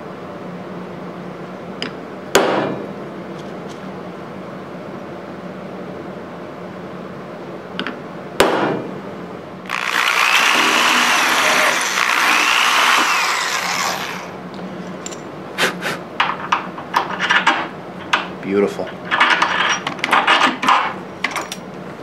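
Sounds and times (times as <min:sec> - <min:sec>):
cordless drill boring metal: 0:09.7 - 0:14.4.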